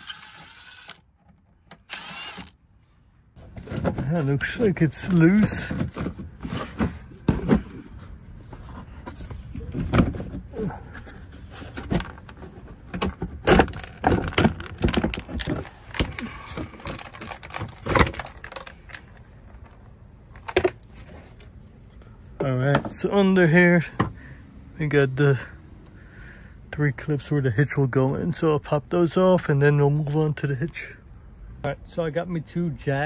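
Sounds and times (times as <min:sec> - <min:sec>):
plastic cover knocking and rattling: 0:05.4 - 0:07.7, 0:11.7 - 0:19.0.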